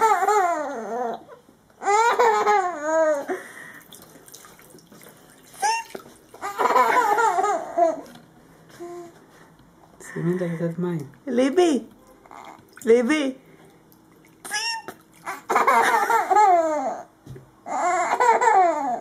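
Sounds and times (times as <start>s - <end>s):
baby laughing in squeals: 0.0s - 3.4s, 5.6s - 8.1s, 14.4s - 17.1s, 17.7s - 19.0s.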